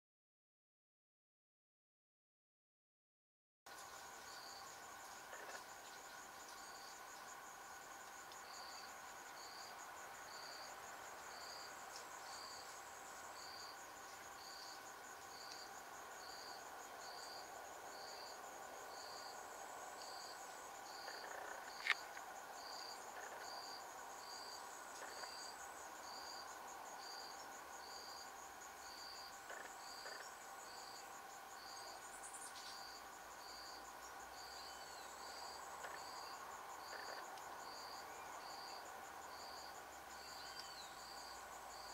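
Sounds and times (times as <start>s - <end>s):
insect chirping: 3.7s - 41.9s
high-pitched insect buzz: 20.0s - 41.9s.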